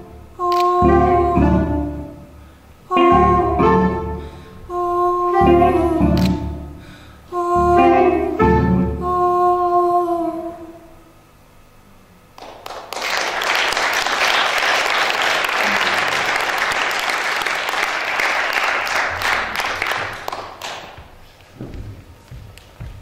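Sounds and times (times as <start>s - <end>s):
audience applause: 12.4s - 21.0s.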